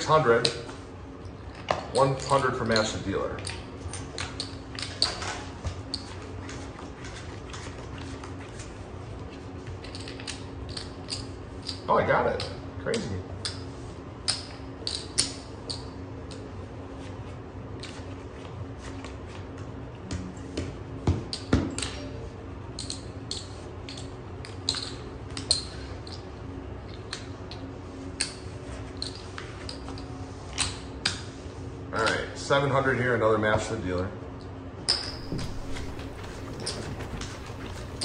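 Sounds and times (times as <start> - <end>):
low background hum: 0.0 - 38.0
dull knocks: 35.1 - 38.0.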